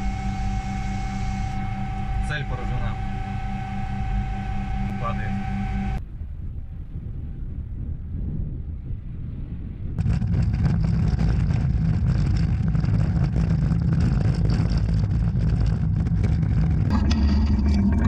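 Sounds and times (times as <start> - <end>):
tracked vehicle engine rumble: 0.0 - 6.0, 10.0 - 18.0
tracked running gear noise: 10.0 - 18.0.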